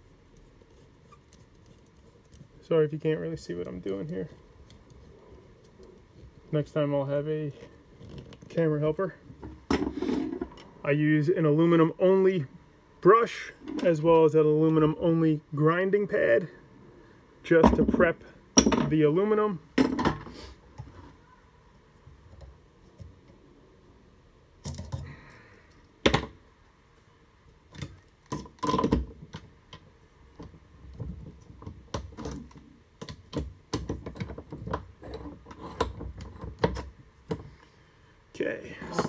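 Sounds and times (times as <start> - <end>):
vise handle being worked: 33.8 - 37.4.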